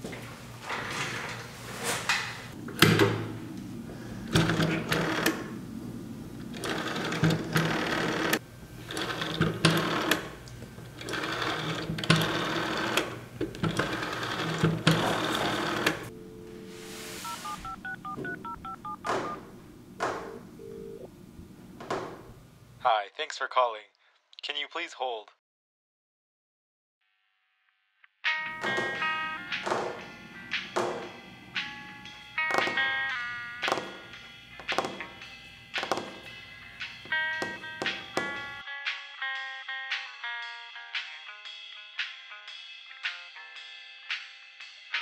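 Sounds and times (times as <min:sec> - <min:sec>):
rotary telephone dial whirring: 0:04.2 - 0:05.5, 0:06.4 - 0:16.1
steady telephone tone: 0:15.5 - 0:19.5, 0:20.2 - 0:21.1.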